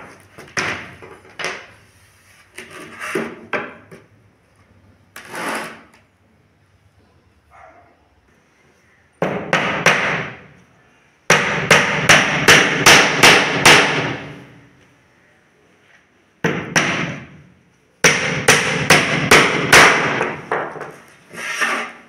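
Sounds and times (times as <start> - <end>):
hammer nailing into plywood: 9.2 - 10.4, 11.3 - 14.3, 16.4 - 17.4, 18.0 - 20.9.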